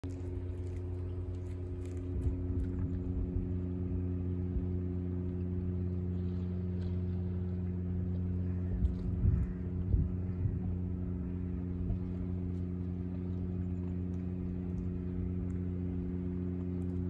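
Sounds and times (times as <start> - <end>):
cat chewing raw fish: 0.0 - 3.8
engine idling: 0.0 - 17.0.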